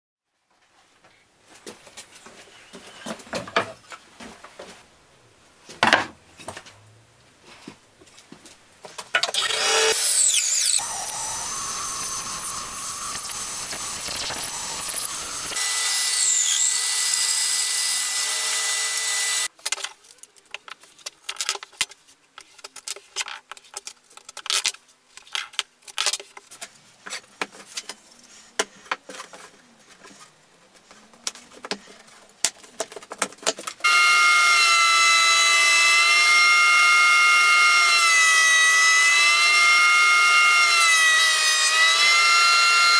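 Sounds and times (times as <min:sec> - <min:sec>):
power saw cutting wood: 0:09.2 - 0:19.5, 0:33.8 - 0:42.9
thickness planer whining: 0:09.3 - 0:19.5, 0:33.8 - 0:42.9.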